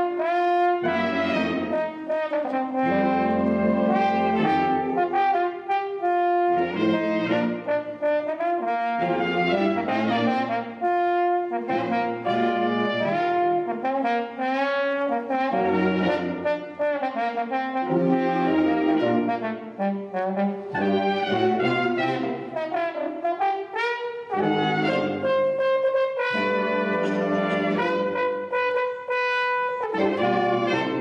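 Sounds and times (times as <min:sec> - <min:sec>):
brass ensemble playing: 0:00.0 - 0:31.0.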